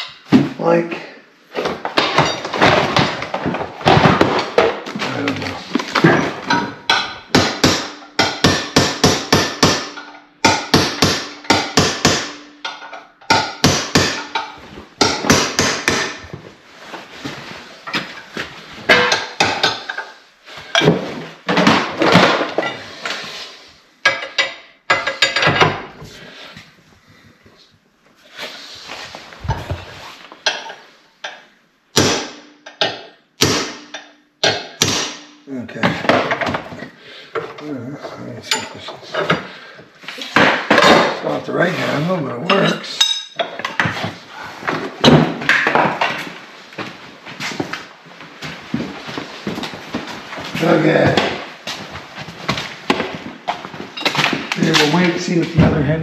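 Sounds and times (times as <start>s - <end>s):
metal tools clanking on vise: 24.0s - 26.0s, 30.4s - 31.4s, 38.4s - 39.5s, 42.5s - 43.9s.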